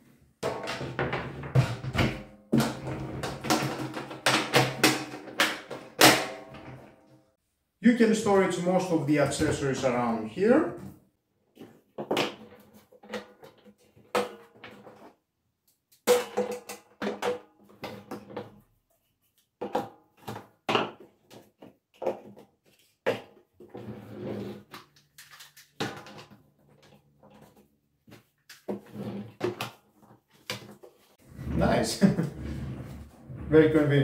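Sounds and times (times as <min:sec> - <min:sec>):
plastic nozzles knocking and clicking: 0:00.4 - 0:07.0.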